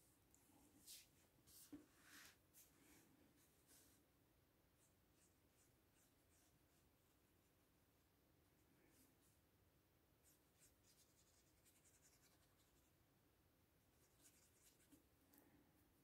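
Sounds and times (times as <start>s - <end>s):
brush scratching across paper: 10.2s - 12.9s, 14.0s - 15.0s.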